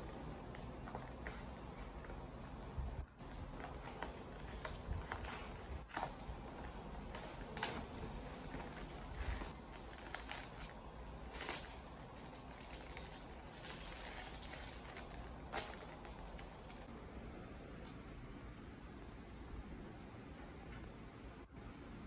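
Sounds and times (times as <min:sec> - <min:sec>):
paper bag crinkling: 0:03.2 - 0:16.9
plastic bag crinkling: 0:03.2 - 0:16.9.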